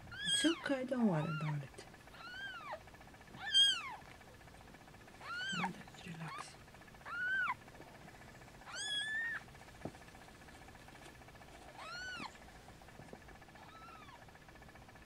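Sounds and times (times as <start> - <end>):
kitten mewing: 0.0 - 4.0, 5.2 - 7.6, 8.6 - 9.5, 11.6 - 12.4, 13.6 - 14.2.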